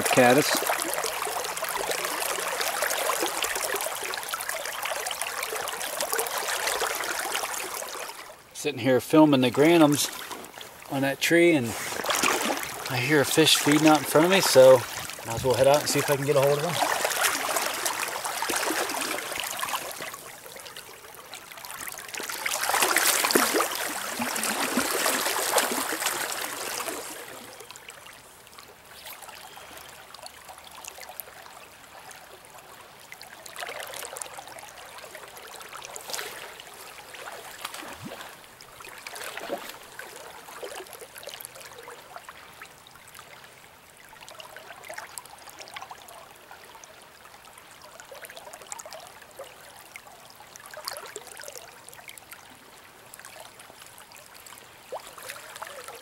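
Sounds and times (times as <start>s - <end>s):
river current flowing: 0.0s - 56.0s
legs sloshing through water: 9.6s - 10.9s, 11.5s - 31.4s, 33.4s - 42.3s.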